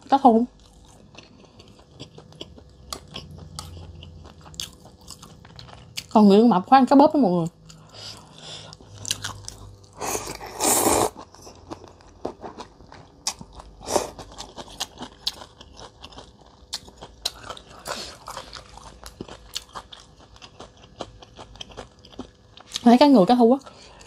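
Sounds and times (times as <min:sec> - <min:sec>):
wet chewing sounds: 0:00.6 - 0:06.2, 0:07.5 - 0:22.9
person slurping noodles: 0:09.9 - 0:11.2.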